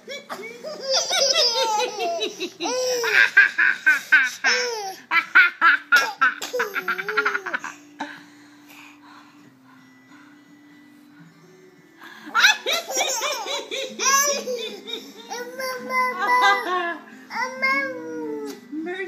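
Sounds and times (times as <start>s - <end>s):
toddler laughing: 0.1s - 5.3s, 6.0s - 7.7s, 12.4s - 18.0s.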